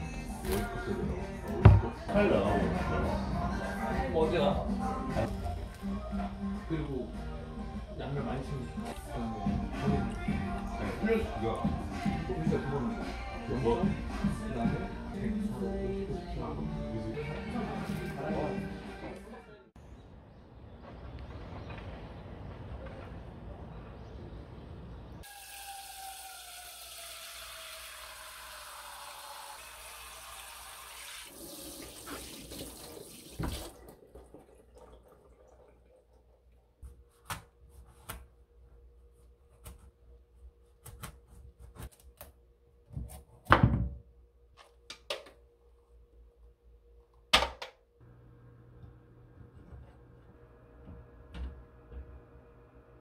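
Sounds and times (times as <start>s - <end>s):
tap water running into sink: 25.2s - 36.6s.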